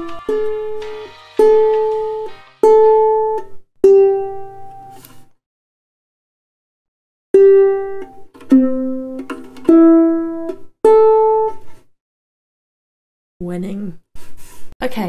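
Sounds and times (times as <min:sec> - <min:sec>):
ukulele strings plucked: 0:00.0 - 0:05.0, 0:07.4 - 0:11.6.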